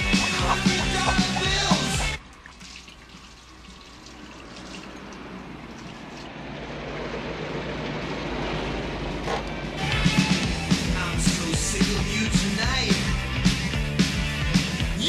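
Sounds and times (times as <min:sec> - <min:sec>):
rock music: 0:00.0 - 0:02.2, 0:09.7 - 0:15.0.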